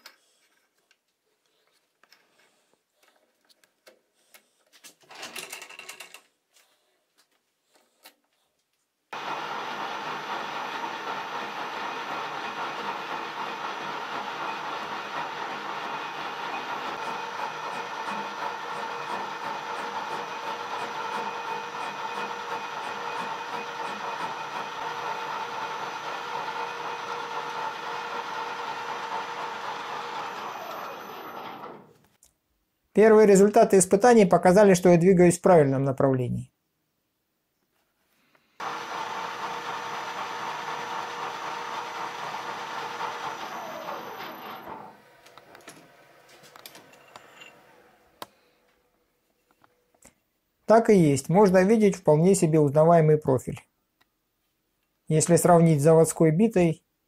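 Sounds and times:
metal lathe cutting with whine: 9.2s - 31.8s, 38.6s - 45.0s.

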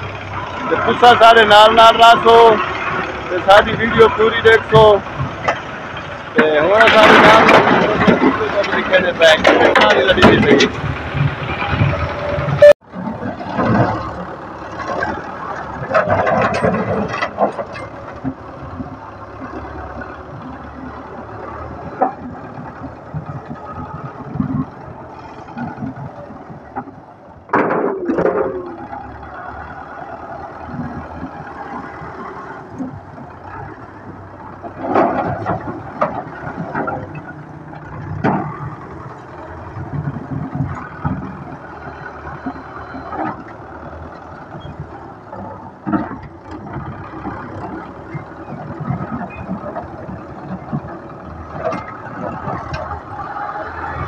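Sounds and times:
tractor diesel engine running: 0.0s - 54.0s
bricks clattering into trailer: 6.4s - 10.7s.

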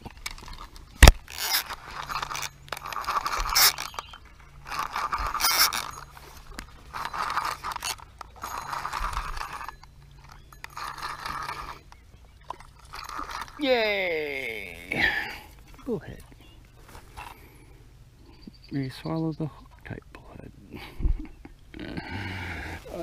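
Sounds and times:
fishing reel cranking: 1.2s - 14.9s.

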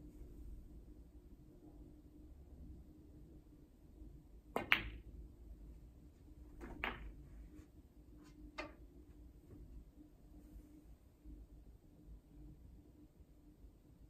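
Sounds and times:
cue tip striking ball: 4.6s - 5.0s, 6.6s - 7.2s
snooker balls clicking: 4.6s - 5.1s, 6.5s - 7.2s, 8.3s - 8.8s
faint knocks of rolling balls: 6.5s - 7.5s.

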